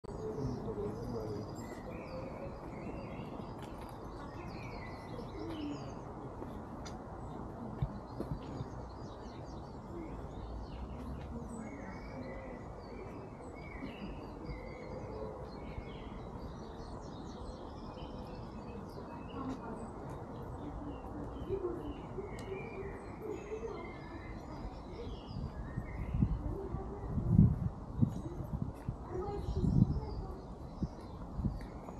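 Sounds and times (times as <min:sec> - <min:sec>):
small birds chirping: 0:00.0 - 0:31.9.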